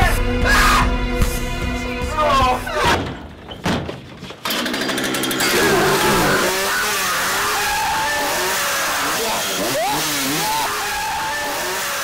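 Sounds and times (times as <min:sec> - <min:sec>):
chainsaw running at high revs: 0:04.5 - 0:12.0.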